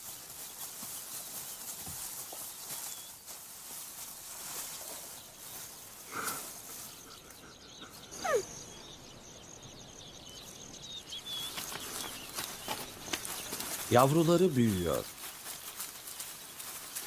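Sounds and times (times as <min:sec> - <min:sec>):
steady high insect hiss: 0:00.0 - 0:17.0
faint high chirps: 0:05.0 - 0:15.0.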